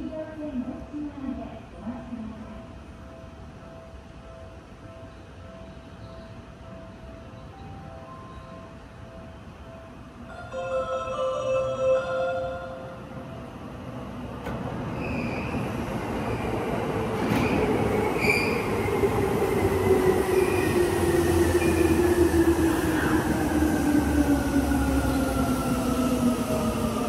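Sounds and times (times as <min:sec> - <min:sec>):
wheel squeal: 0:15.0 - 0:15.6.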